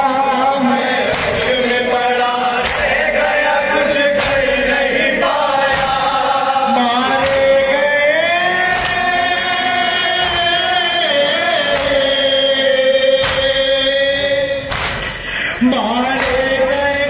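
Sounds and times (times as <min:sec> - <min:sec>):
men chanting a lament: 0:00.0 - 0:17.0
hands slapping on chests: 0:01.1 - 0:01.6, 0:02.6 - 0:03.1, 0:04.1 - 0:04.6, 0:05.6 - 0:06.2, 0:07.2 - 0:07.6, 0:08.7 - 0:09.2, 0:11.7 - 0:12.2, 0:13.2 - 0:13.6, 0:14.7 - 0:15.2, 0:16.2 - 0:16.6.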